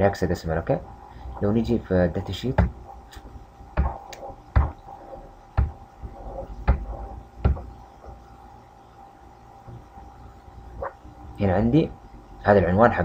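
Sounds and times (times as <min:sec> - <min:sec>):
computer clicks with dull thump: 0:02.6 - 0:04.9, 0:05.5 - 0:08.2.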